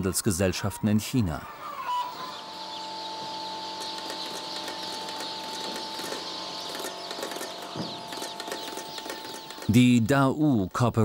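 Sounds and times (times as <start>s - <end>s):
chicks peeping: 0.0s - 11.0s
steady machine hum: 2.4s - 10.0s.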